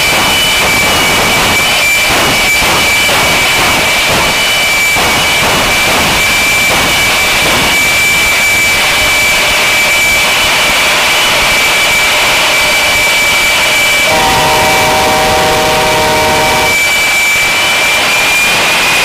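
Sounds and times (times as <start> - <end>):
jet engine whining: 0.0 - 19.0
several steady held tones: 14.0 - 17.6.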